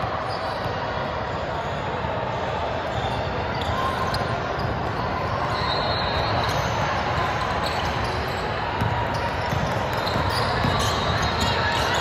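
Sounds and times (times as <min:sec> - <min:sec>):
court noise: 0:00.0 - 0:12.0
spectator chatter: 0:00.0 - 0:12.0.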